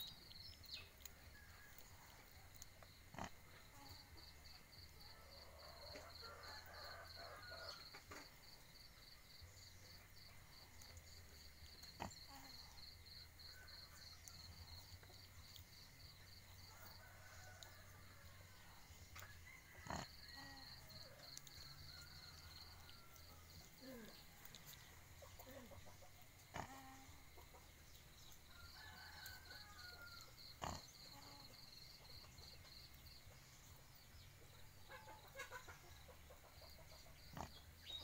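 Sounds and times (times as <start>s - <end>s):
faint animal calls: 11.9s - 12.8s, 26.4s - 27.3s.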